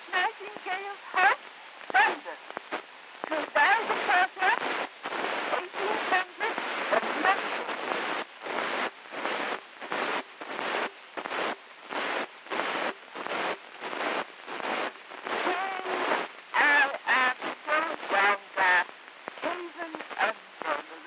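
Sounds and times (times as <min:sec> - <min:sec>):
elderly woman speaking faintly: 0:05.4 - 0:07.8, 0:15.4 - 0:21.0.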